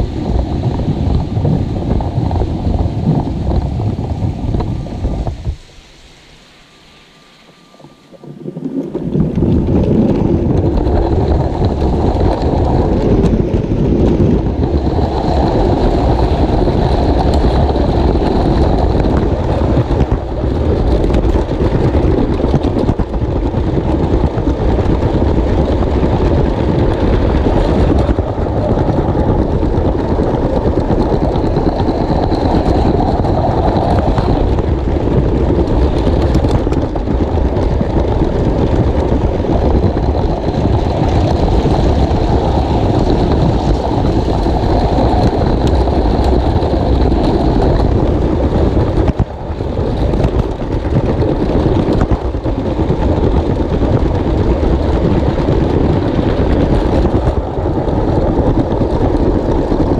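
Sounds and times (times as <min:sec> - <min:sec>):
toy train rumble and rattle: 0:00.0 - 0:59.9
faint high whine: 0:01.4 - 0:12.0.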